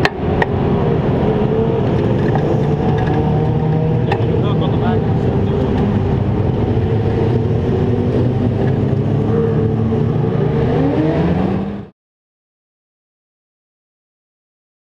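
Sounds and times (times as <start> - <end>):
engine revving up: 0.0 - 11.9
race car engines droning: 0.0 - 11.9.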